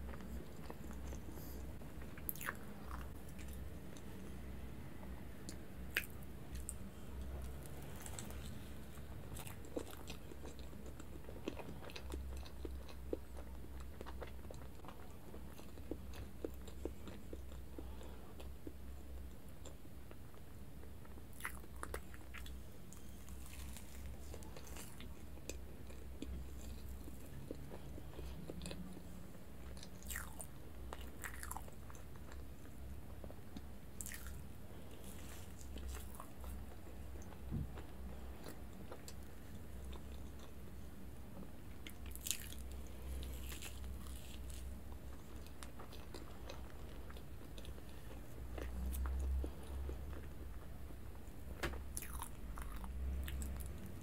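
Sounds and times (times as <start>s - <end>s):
steady low hum: 0.0s - 54.0s
biting and chewing cake: 5.5s - 40.6s, 41.8s - 51.1s, 51.8s - 54.0s.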